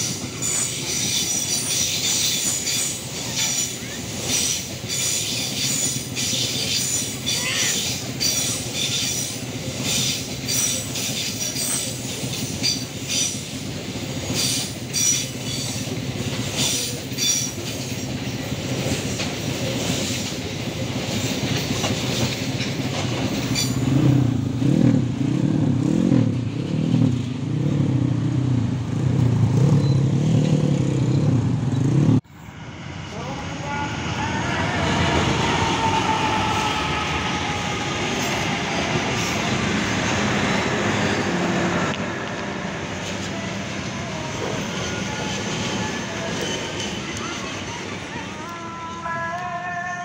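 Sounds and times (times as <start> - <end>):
train rumble: 0.0 - 50.0
motorcycle engines revving: 23.8 - 32.2.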